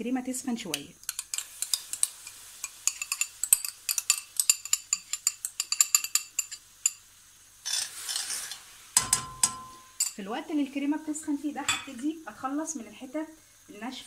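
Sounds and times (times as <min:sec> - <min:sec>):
spoon scraping glass bowl: 0:02.8 - 0:06.6, 0:07.6 - 0:08.6.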